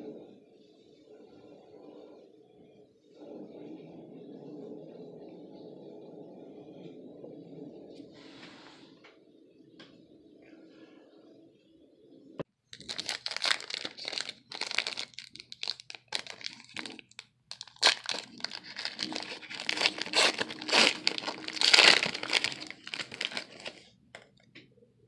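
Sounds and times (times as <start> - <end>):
plastic wrapper crinkling and tearing: 12.8 - 24.4.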